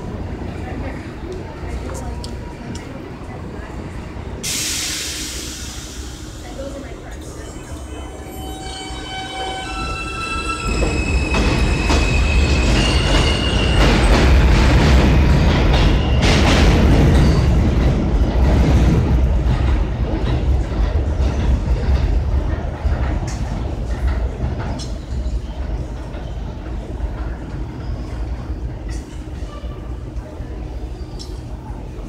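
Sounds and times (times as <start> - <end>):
train propulsion tones rising: 3.9 - 28.8
train wheels rumbling and clicking: 10.2 - 32.0.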